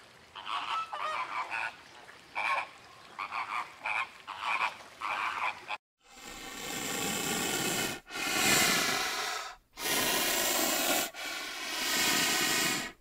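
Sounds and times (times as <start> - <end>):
rhinoceros breathing: 6.0 - 13.0.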